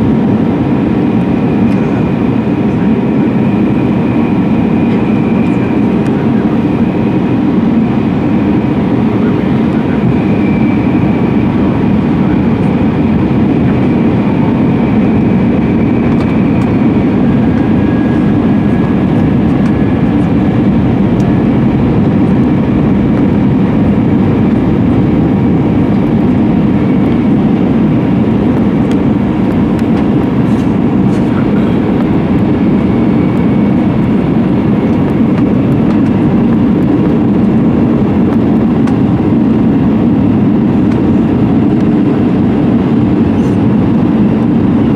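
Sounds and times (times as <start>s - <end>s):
jet engines and airflow rushing: 0.0s - 44.9s
faint high whine: 9.2s - 34.9s.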